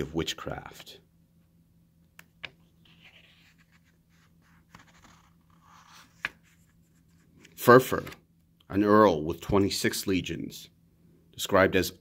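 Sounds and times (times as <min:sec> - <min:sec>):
book pages turning: 0:02.4 - 0:08.2.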